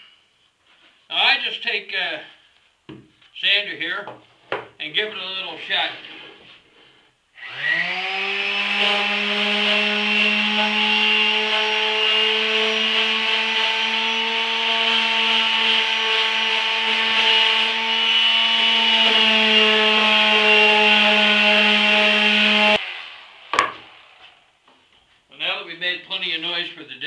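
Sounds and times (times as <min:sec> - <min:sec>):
electric palm sander on wood: 0:07.4 - 0:24.4.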